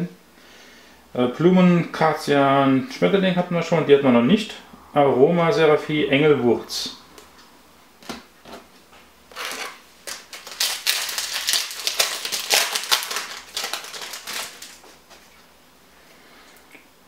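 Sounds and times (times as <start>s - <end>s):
foil pack crackling: 9.3s - 15.3s.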